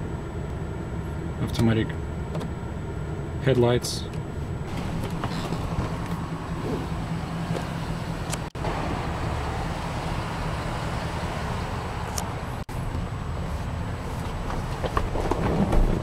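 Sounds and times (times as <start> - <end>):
low vehicle hum: 0.0 - 16.0.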